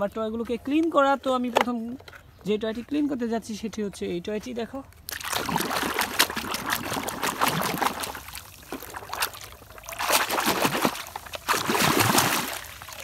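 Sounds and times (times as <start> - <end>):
water splashing and sloshing: 4.9 - 13.0.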